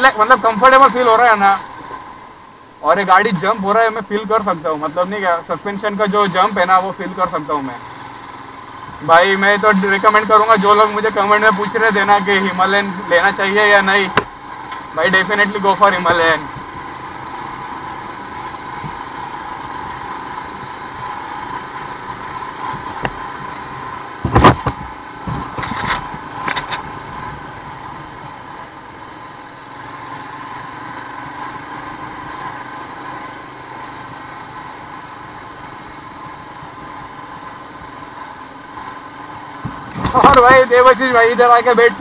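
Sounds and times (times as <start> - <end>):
motorcycle engine running: 0.0 - 42.0
sharp knocks: 24.2 - 25.8.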